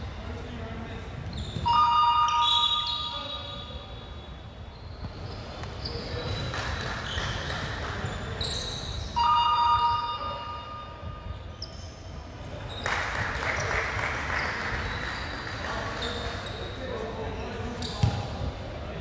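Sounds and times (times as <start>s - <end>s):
sneaker squeaks on hardwood floor: 1.2s - 4.0s, 4.6s - 9.3s, 11.5s - 12.9s, 17.8s - 18.3s.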